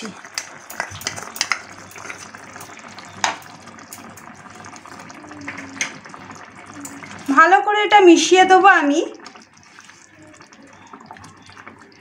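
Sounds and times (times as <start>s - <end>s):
gravy simmering hiss: 0.0s - 12.0s
metal spoon scraping and tapping: 0.3s - 2.2s.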